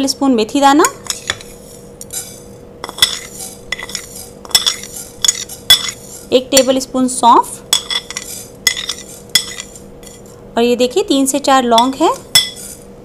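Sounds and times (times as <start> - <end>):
metal spoon clinking on plate: 0.8 - 6.0, 7.7 - 10.3, 11.8 - 12.8.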